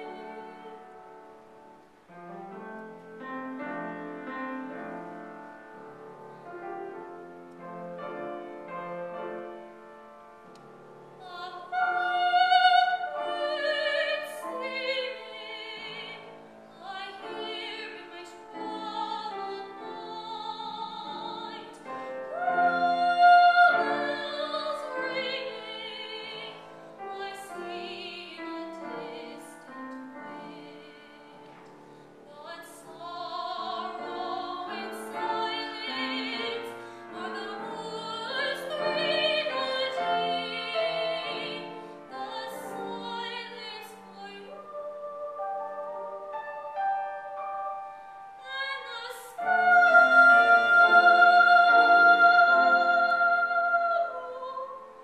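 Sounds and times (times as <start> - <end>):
grand piano: 0.0 - 55.0
woman singing operatically: 11.2 - 16.2, 16.8 - 31.4, 32.3 - 45.4, 48.4 - 55.0.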